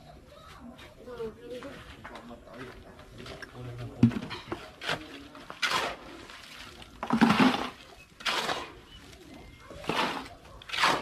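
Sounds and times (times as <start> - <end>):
wet concrete swishing: 4.7 - 11.0.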